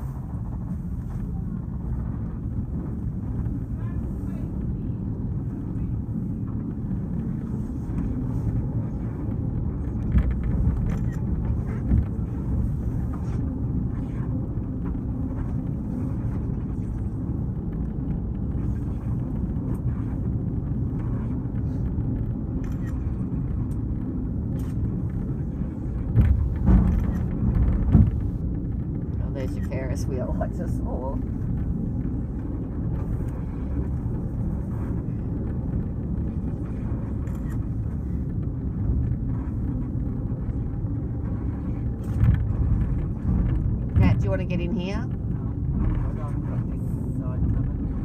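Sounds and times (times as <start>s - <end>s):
funicular car rumbling: 0.0s - 48.0s
car bumps: 26.0s - 28.5s.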